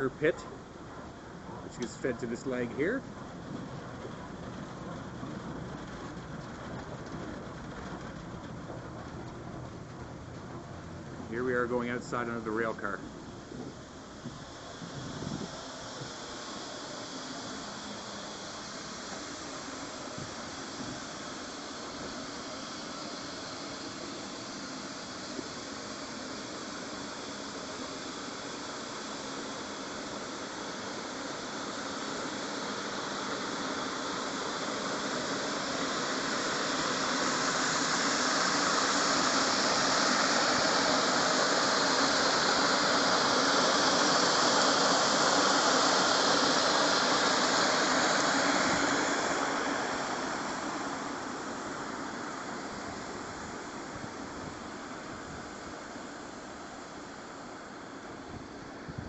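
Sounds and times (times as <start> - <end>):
corn pouring into a hopper: 31.5 - 50.5.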